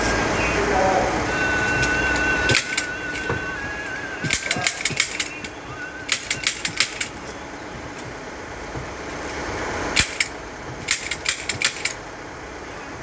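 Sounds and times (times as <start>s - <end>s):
staple gun firing: 10.0s - 12.0s.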